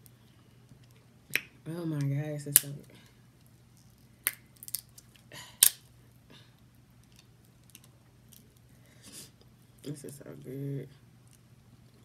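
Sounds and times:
crab shell cracking: 3.8 - 5.8.

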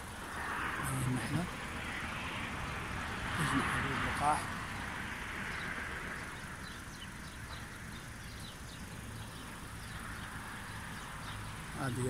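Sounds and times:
honeybees humming: 0.0 - 12.0
small bird chirping: 5.5 - 12.0.

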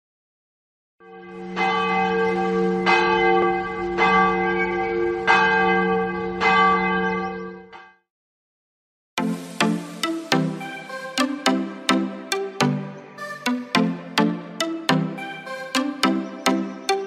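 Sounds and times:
large church bell tolling: 1.0 - 7.9.

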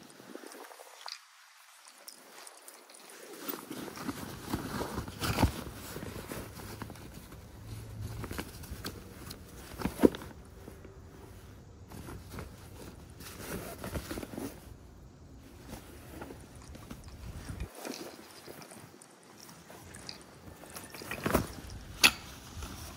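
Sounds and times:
fabric rustling: 0.0 - 22.9.

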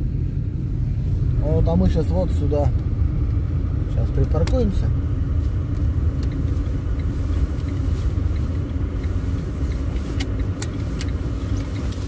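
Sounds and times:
car engine and tyres rumbling: 0.0 - 12.0
light ticks: 5.7 - 12.0.

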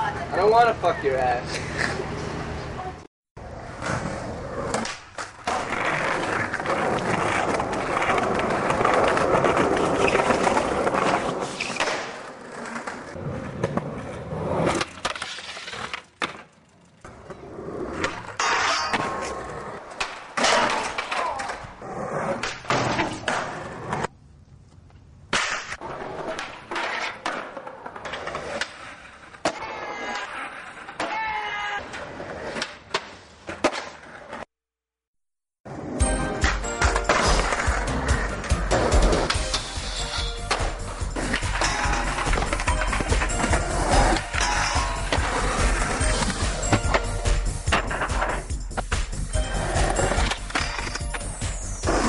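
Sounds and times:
skateboard wheels rolling on concrete: 0.0 - 34.5, 35.6 - 52.0
skateboards popping and clacking: 3.4 - 24.2, 24.8 - 34.5, 35.7 - 52.0
skateboard grinding metal rail: 3.5 - 21.2, 25.4 - 34.3, 35.7 - 52.0
skateboard landings and slams: 3.6 - 16.5, 17.9 - 24.1, 25.3 - 34.4.

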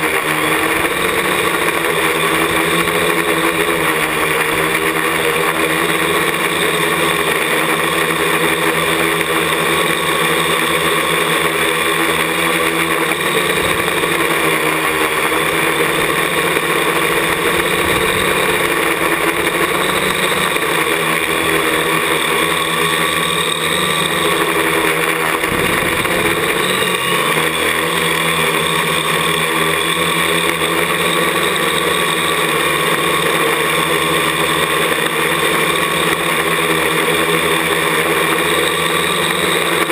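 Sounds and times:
drone propellers whirring: 0.0 - 39.9
low rumbles: 13.3 - 20.8, 25.3 - 28.0.

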